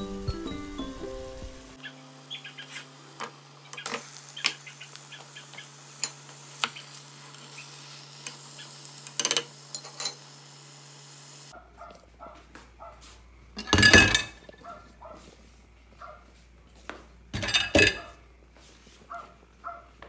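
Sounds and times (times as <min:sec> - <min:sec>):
meat sizzling in a pot: 0:00.2 - 0:11.6.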